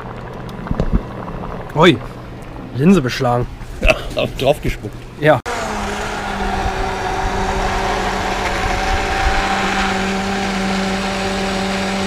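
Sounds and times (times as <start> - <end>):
immersion blender motor hum: 5.5 - 12.0.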